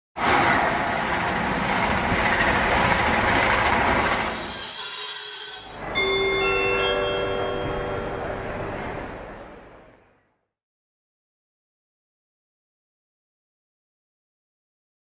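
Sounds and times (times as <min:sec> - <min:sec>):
train rushing and rumbling: 0:00.2 - 0:10.0
steady high tones: 0:04.3 - 0:09.3.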